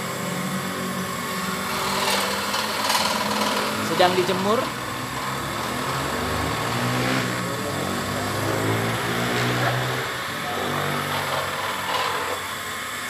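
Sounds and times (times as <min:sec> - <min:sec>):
motor engine running: 0:00.0 - 0:12.6.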